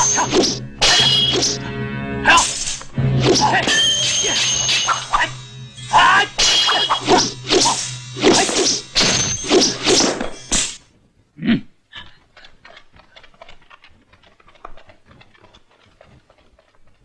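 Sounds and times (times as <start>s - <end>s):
fight whacks and thwacks: 0.2s - 1.6s, 6.4s - 10.4s.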